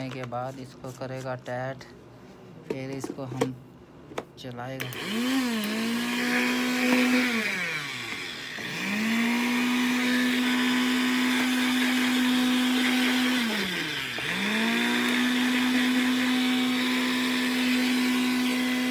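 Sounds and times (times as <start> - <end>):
mixer grinder motor whining: 4.7 - 18.9.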